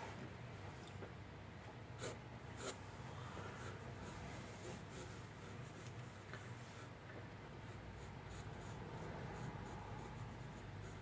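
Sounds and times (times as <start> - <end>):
low steady hum: 0.0 - 11.0
pencil scratching on paper: 2.0 - 2.8, 3.5 - 5.9, 7.6 - 11.0.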